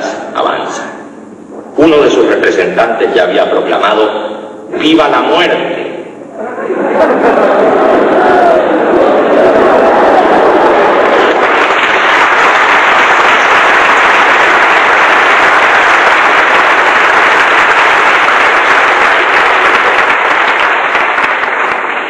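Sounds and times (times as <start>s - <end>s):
audience applauding: 6.9s - 22.0s.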